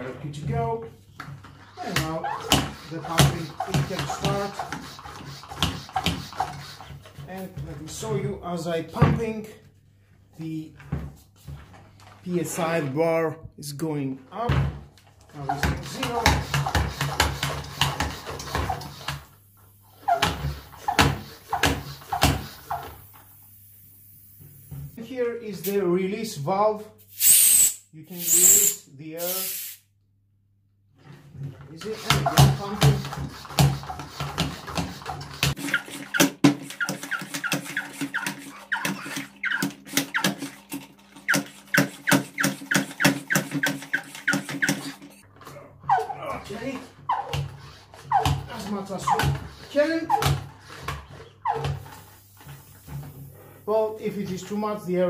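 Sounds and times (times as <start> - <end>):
hand pump strokes: 1.4 - 8.1, 15.4 - 23.2, 27.2 - 29.6, 31.7 - 45.3, 45.9 - 54.7.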